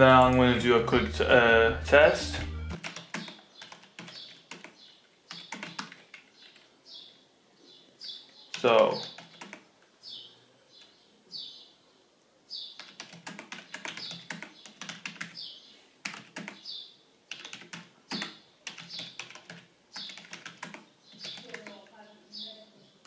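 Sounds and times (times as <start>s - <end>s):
keyboard typing clicks: 2.7s - 6.7s, 8.5s - 9.7s, 12.8s - 15.4s, 16.0s - 16.6s, 17.3s - 21.8s.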